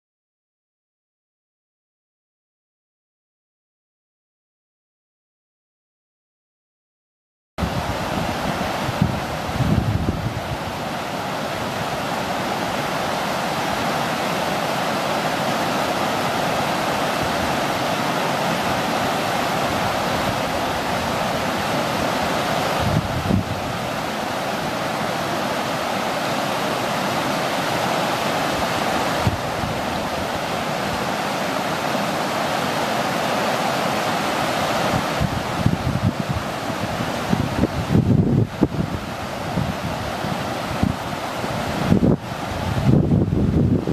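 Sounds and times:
wind buffets on microphone: 7.6 - 13.9, 16.2 - 27.3, 28.3 - 32.2, 34.3 - 43.9
stream rushing over rocks: 7.6 - 43.9.

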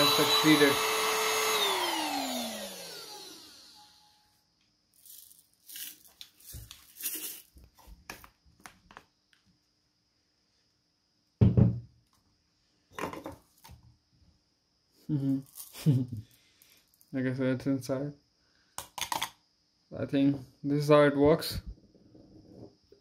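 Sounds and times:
vacuum motor winding down: 0.0 - 4.1
knock: 11.4 - 11.9.

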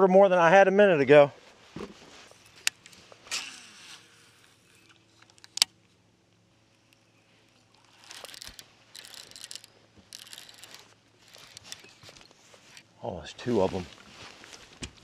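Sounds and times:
fishing reel cranking: 7.7 - 12.0.

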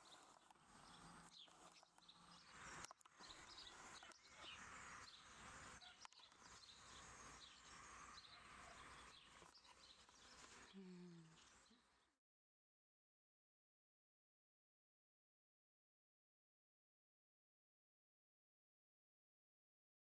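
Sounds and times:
small birds chirping faintly: 0.0 - 12.2.

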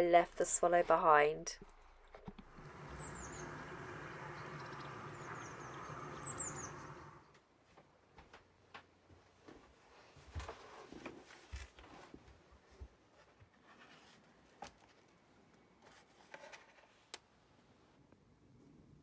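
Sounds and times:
rustling of book pages: 10.2 - 17.2.

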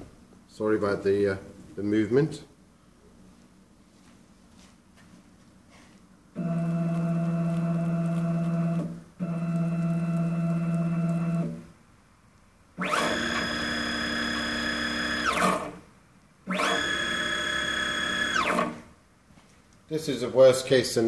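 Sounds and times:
stepper motor humming: 6.4 - 11.6
stepper motor high whine: 12.8 - 15.8, 16.5 - 18.8.

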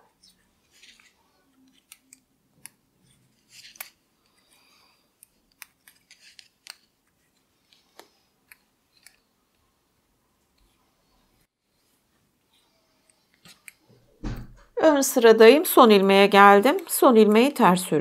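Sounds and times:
knitting needles clicking: 0.2 - 4.4, 5.2 - 6.9, 7.7 - 9.2, 13.3 - 13.8.

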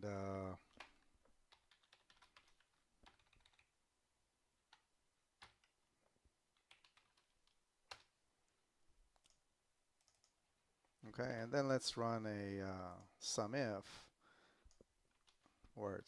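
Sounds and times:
faint keyboard typing: 0.2 - 3.8, 4.6 - 11.0, 12.8 - 13.2, 14.6 - 15.8.

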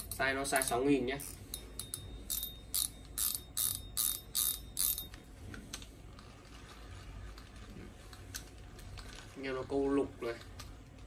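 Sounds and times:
fishing reel ratcheting: 0.0 - 5.2.

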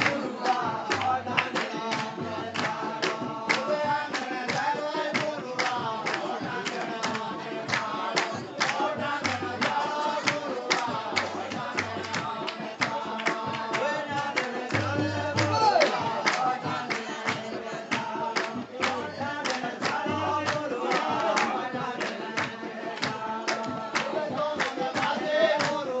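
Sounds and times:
fast steady drumbeat: 0.0 - 26.0.

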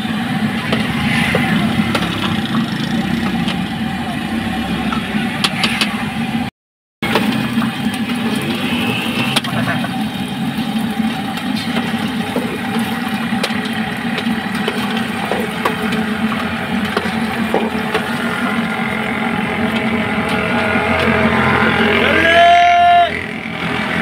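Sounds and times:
fries sizzling in hot oil: 0.0 - 3.9, 7.0 - 21.6
low engine-like rumble: 0.0 - 24.0.

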